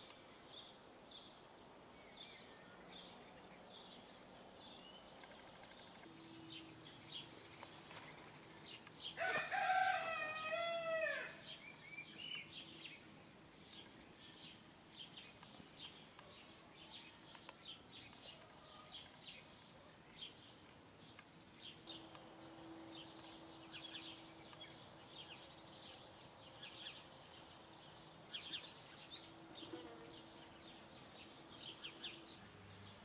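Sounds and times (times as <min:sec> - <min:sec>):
small birds chirping: 0:00.0 - 0:33.0
rooster crowing: 0:09.2 - 0:11.4.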